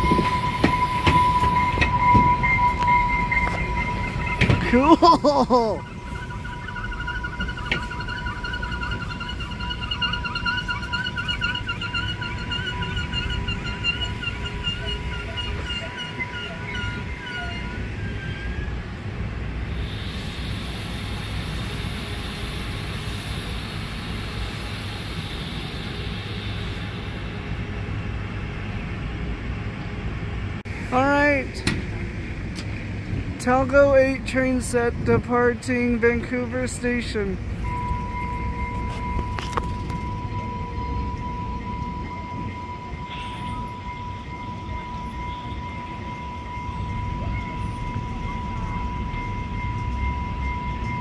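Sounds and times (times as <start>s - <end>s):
steady high-pitched tone: 0.0s - 17.9s, 35.8s - 51.0s
train wheels rumbling on rail: 0.0s - 51.0s.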